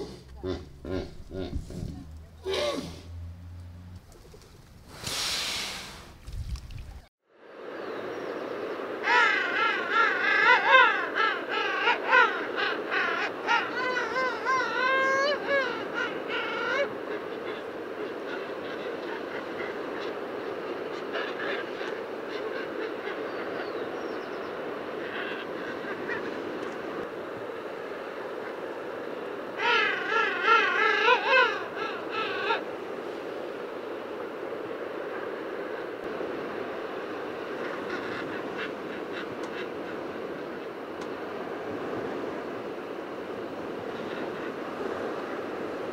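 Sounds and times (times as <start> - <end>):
background hiss: 0.0 - 9.3.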